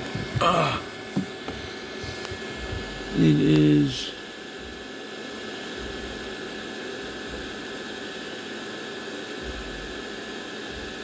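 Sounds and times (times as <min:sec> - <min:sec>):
faint high hum: 0:00.0 - 0:11.0.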